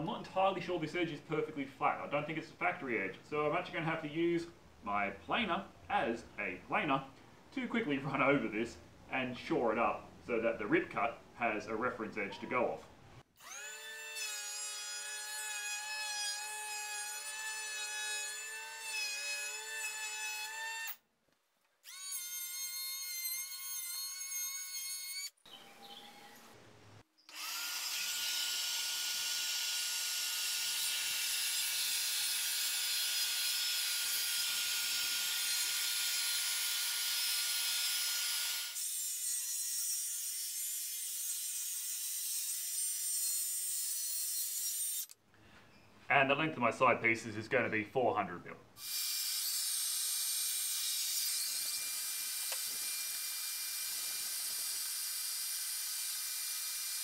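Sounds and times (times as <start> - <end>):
circular saw cutting plywood: 27.3 - 45.2, 48.8 - 57.0.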